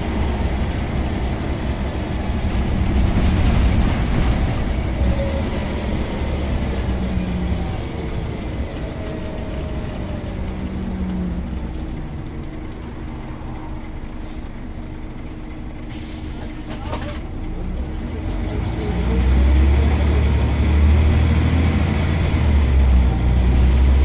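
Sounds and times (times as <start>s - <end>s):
bus diesel engine pulling: 0.0s - 24.0s
road rumble: 0.0s - 24.0s
short air hiss: 15.9s - 16.8s.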